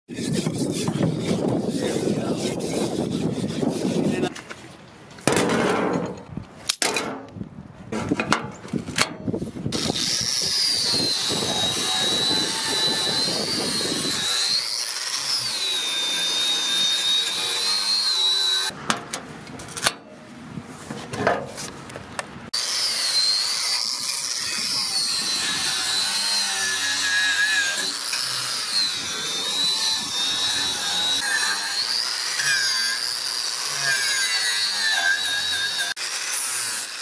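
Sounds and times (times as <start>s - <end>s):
angle grinder wire brush rasping: 0.1s - 4.3s, 9.8s - 18.7s, 22.6s - 37.0s.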